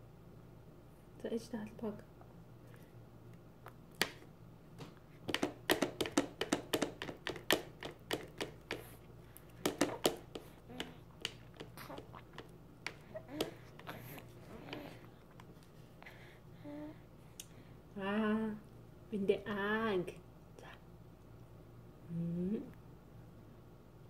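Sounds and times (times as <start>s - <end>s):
plastic spoon tapping on a plate: 5.3s - 8.8s, 9.6s - 11.7s.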